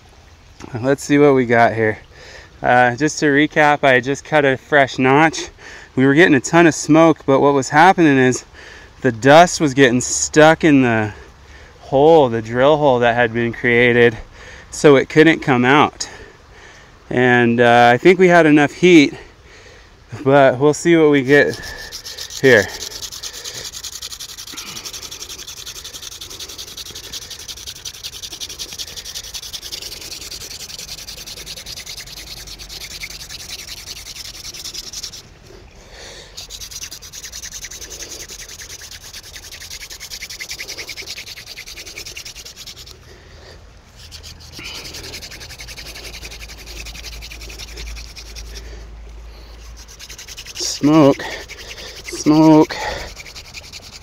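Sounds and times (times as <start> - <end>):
hand drill spindle rubbing: 21.2 - 35.6, 36.3 - 43.0, 43.8 - 54.0.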